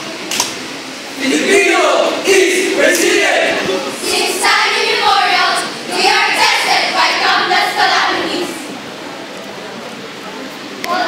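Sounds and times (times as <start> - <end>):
young voices reciting in unison: 1.2 - 8.8.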